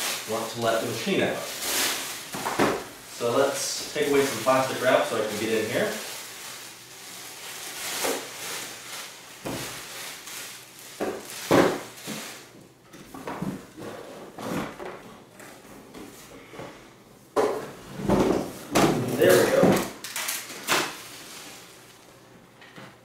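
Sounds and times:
plastic wrap crinkling: 0.0 - 12.5, 19.2 - 22.1.

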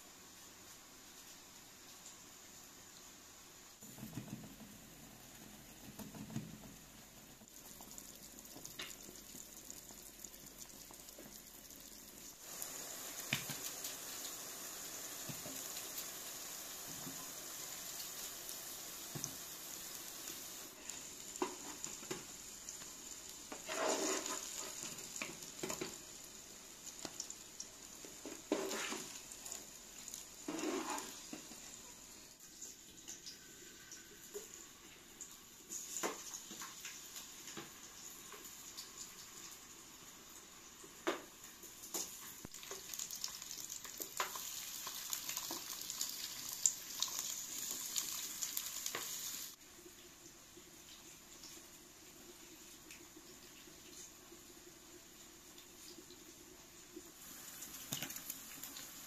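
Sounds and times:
slices sizzling in oil: 0.0 - 49.6, 55.1 - 59.0
wooden spatula scraping pan: 23.5 - 24.9, 28.3 - 29.2, 30.4 - 31.5.

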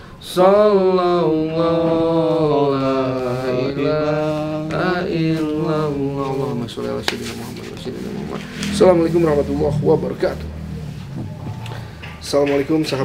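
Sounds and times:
man chanting: 0.2 - 11.2.

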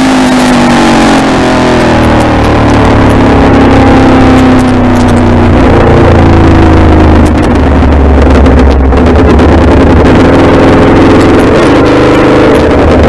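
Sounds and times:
motorcycle engine running: 0.0 - 13.0
wind rush on microphone: 1.8 - 13.0.

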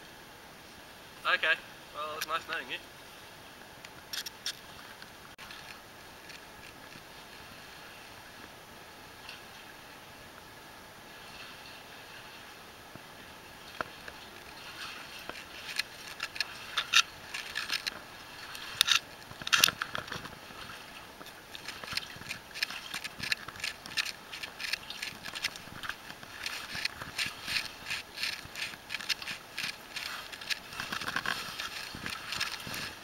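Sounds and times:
clicks knocks and scrapes: 13.8 - 20.4, 21.2 - 33.0
person stepping through water: 13.8 - 33.0.

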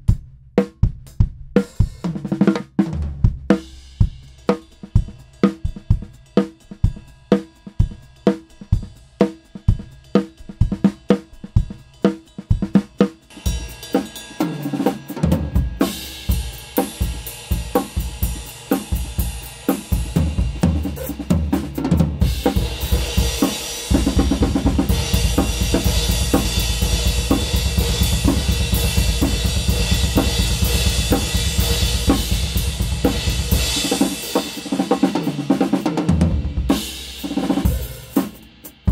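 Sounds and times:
drum groove with cymbals: 0.0 - 38.9
kick drum and snare strokes: 15.4 - 38.9.

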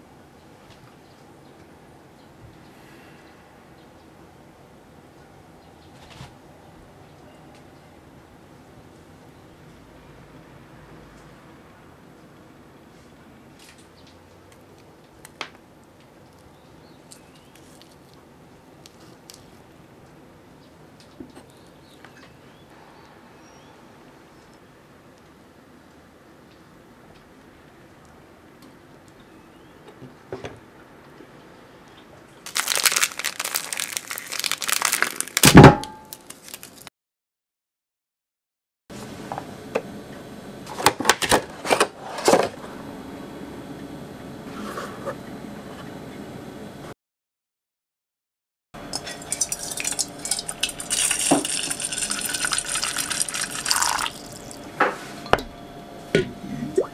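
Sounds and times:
plastic packaging clicks and crinkles: 32.4 - 36.9.

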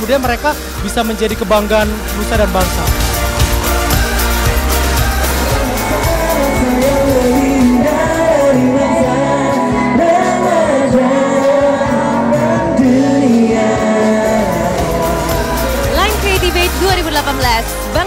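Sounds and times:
band accompaniment: 0.0 - 18.0.

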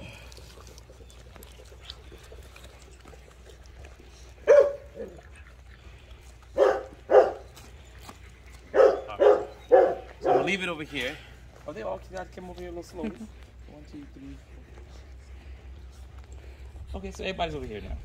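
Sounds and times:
puppies barking: 0.9 - 11.1.

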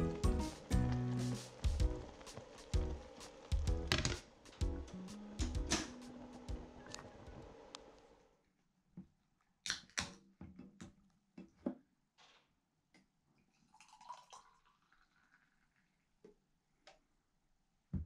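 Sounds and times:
beer pouring into glass: 13.6 - 15.9.

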